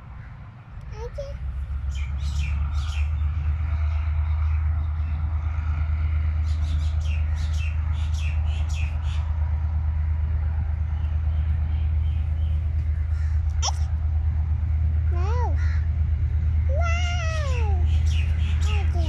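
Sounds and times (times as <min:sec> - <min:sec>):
steady low rumble: 0:00.0 - 0:19.0
bird chirping: 0:17.8 - 0:19.0.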